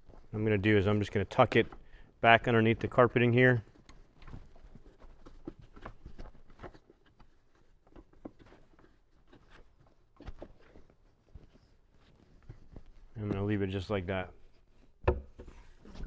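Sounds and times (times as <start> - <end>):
faint taps scuffs and rustles: 2.6 - 16.0
knocks: 15.0 - 15.6.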